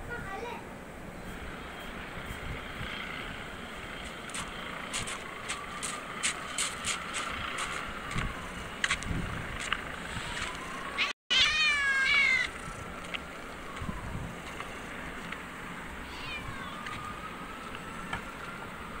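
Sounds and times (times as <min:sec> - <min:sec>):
cat meowing: 0:11.0 - 0:12.5, 0:16.0 - 0:16.8.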